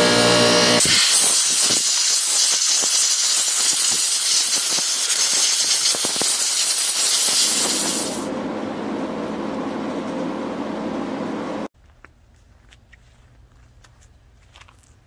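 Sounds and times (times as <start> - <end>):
compressed air hissing from blow gun: 0.8 - 8.3.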